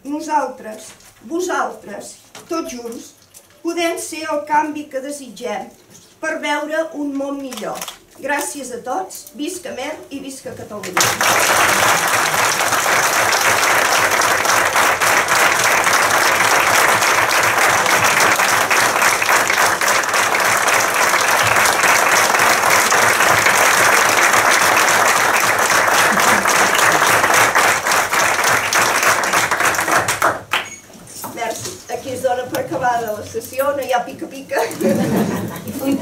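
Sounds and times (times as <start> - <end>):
crowd applause: 11.0 - 30.7.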